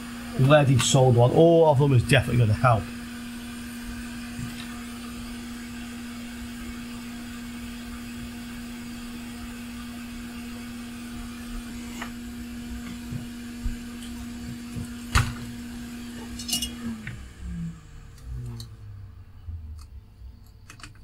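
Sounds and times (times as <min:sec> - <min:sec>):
small electric motor whirring: 0:11.5 - 0:13.4.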